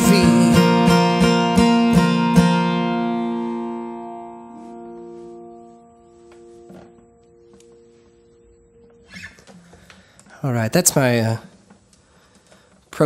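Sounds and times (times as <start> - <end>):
acoustic guitar strumming: 0.0 - 10.2.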